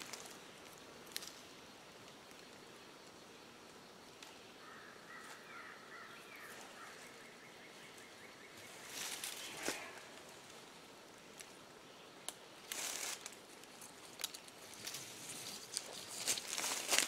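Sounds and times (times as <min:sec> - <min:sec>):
faint bird call: 0:04.6 - 0:10.3
rope scraping rustle: 0:08.7 - 0:10.6, 0:12.6 - 0:17.0.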